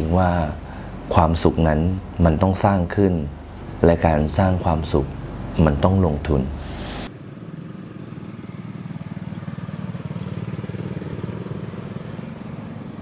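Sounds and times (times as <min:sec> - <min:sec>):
small engine puttering: 0:06.7 - 0:13.0.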